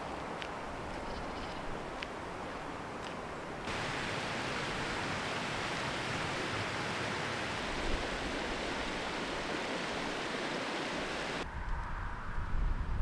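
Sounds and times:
running water rushing: 0:03.6 - 0:11.4.

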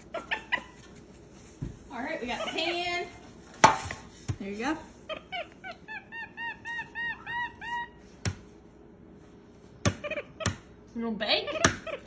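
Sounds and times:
monkey chirping calls: 0:05.1 - 0:08.0, 0:10.0 - 0:10.6, 0:11.5 - 0:12.0.

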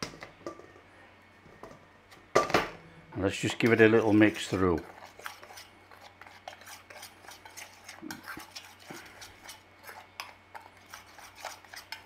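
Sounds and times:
spoon scraping metal bowl: 0:03.4 - 0:12.0.

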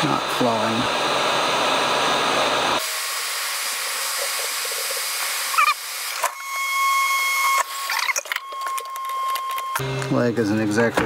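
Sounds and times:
hot air gun blowing: 0:00.0 - 0:08.4.

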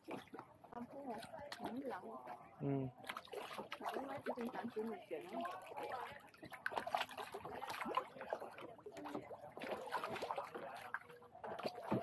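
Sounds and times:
water splashing around a boat: 0:00.0 - 0:12.0.

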